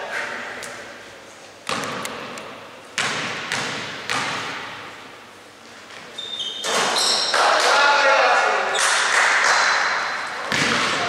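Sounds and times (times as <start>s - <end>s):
basketball bouncing on wooden floor: 3.0s - 4.7s.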